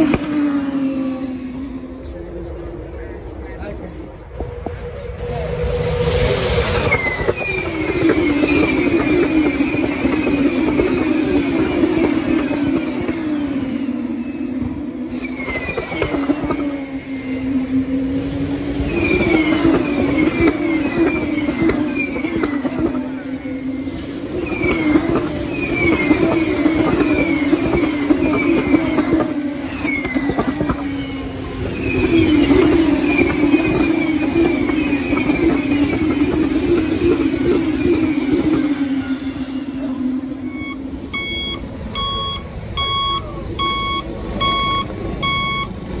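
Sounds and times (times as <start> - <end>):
racing car engines droning past: 0.0 - 41.1
truck reversing alarm beeping: 40.4 - 46.0.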